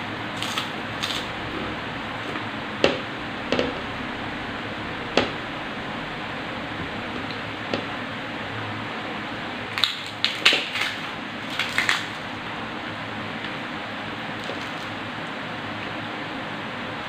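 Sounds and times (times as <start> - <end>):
crisp food crunching: 0.4 - 1.3, 9.7 - 12.3.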